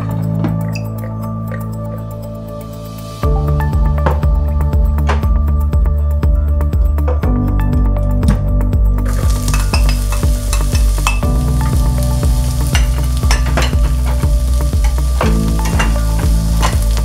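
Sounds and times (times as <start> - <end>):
background music: 0.0 - 17.0
onion sizzling in hot oil: 9.1 - 17.0.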